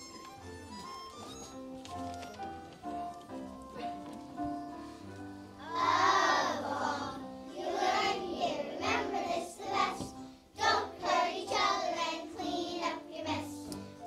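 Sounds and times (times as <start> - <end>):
instrumental accompaniment: 0.0 - 14.0
children singing: 5.6 - 13.7.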